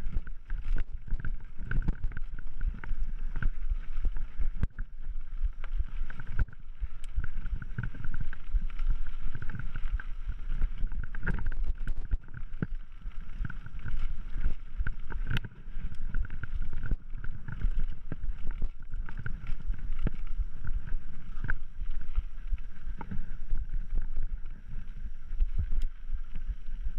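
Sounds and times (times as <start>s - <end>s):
bike rattling with knocks: 5.9s - 24.6s.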